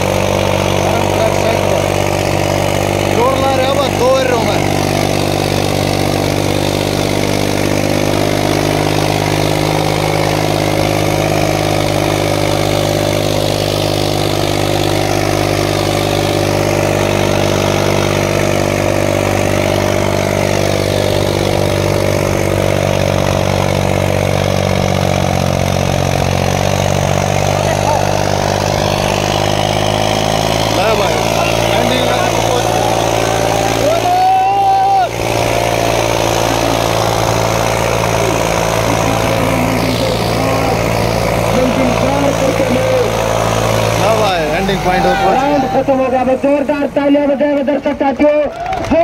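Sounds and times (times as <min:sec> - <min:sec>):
tractor diesel engine labouring: 0:00.0 - 0:49.0.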